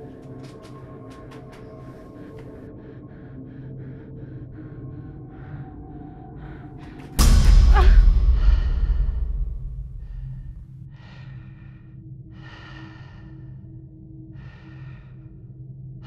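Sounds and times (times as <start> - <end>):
woman breathing heavily: 0.0 - 16.0
jump-scare hit with deep rumble: 7.2 - 10.8.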